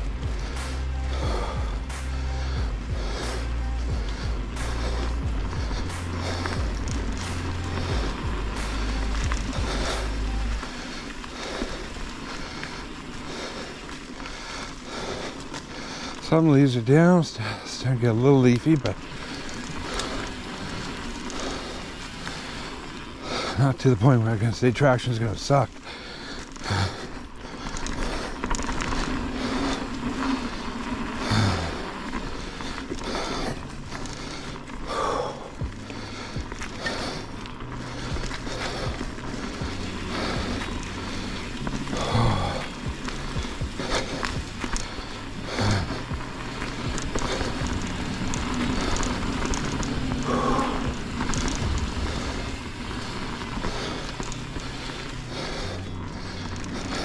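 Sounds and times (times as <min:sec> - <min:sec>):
bike tyres rolling on dirt: 0:00.0 - 0:57.0
bike clicks and knocks: 0:26.2 - 0:55.4.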